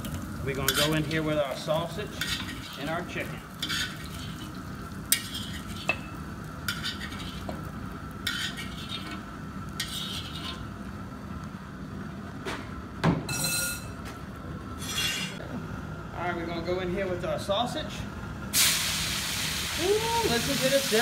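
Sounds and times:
gas burner humming: 0.0s - 21.0s
metal spoon scraping pot bottom: 2.2s - 2.8s, 8.2s - 9.2s, 9.8s - 10.6s.

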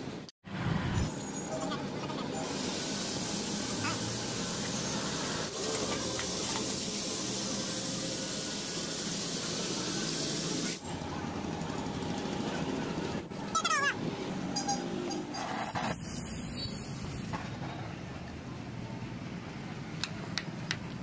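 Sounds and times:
hot steel hissing in water: 2.4s - 10.8s.

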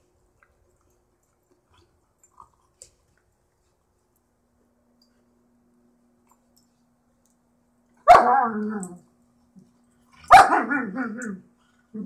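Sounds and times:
dog barking: 8.0s - 8.5s, 10.2s - 11.0s.

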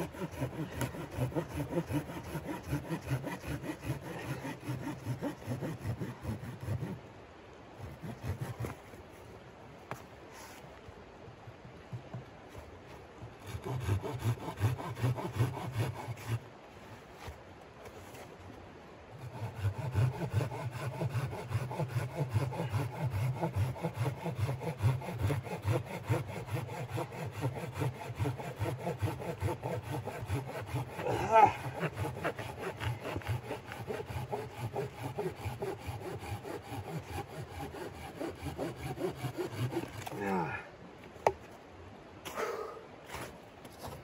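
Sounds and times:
hand saw cutting log: 0.0s - 7.0s, 7.8s - 9.2s, 13.3s - 16.5s, 19.1s - 40.5s, 43.1s - 44.0s.

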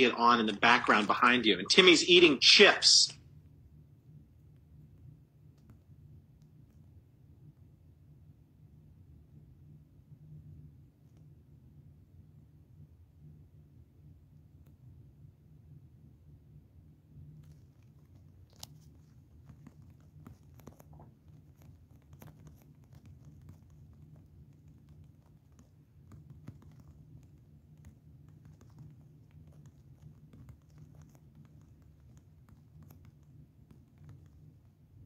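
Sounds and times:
faint low hum: 0.0s - 35.0s
soft clicks and crackles: 4.4s - 7.8s, 17.1s - 35.0s.

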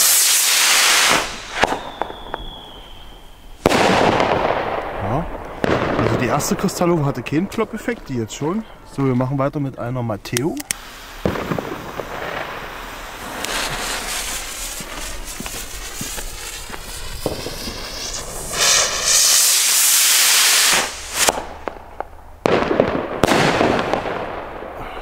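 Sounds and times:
rocket launch whoosh: 0.0s - 3.0s, 10.8s - 21.7s
fuse crackling hiss: 0.0s - 3.8s, 4.7s - 22.4s
firework bang: 0.0s - 8.1s, 10.8s - 24.8s
firework crackles: 0.0s - 8.2s, 10.4s - 24.8s.

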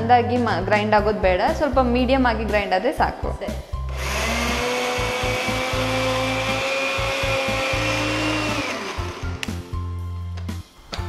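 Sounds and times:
mixer grinder whining: 3.9s - 9.6s.

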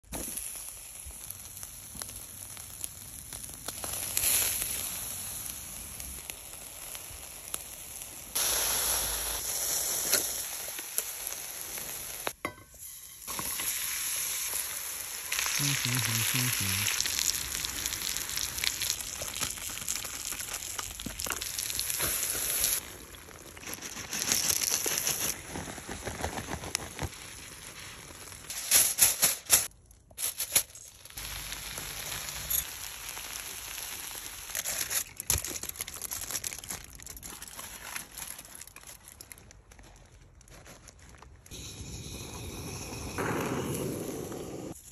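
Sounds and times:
food sizzling on grill: 0.1s - 22.9s, 30.7s - 35.0s.

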